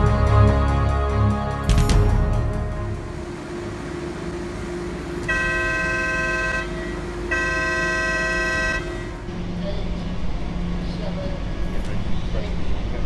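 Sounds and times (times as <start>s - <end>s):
warning horn blasts: 0.0s - 9.6s
low steady hum: 0.0s - 13.0s.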